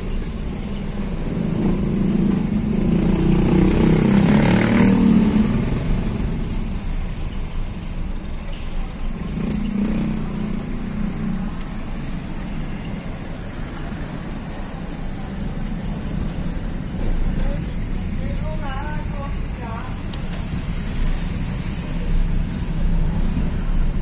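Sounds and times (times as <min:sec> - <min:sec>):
vehicles passing: 0:00.0 - 0:24.0
car engine rumble: 0:05.0 - 0:24.0.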